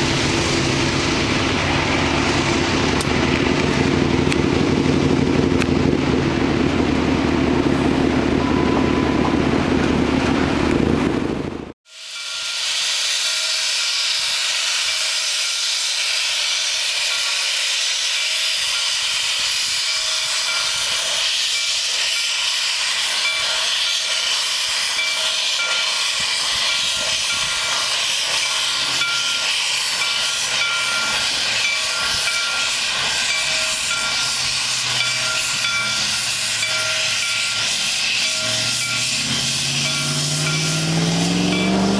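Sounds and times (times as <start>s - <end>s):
steam hissing: 11.9s - 41.9s.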